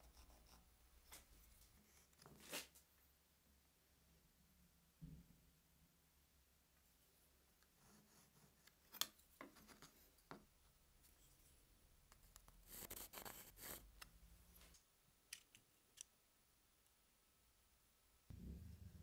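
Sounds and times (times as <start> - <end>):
pencil scratching along ruler: 12.6 - 13.9.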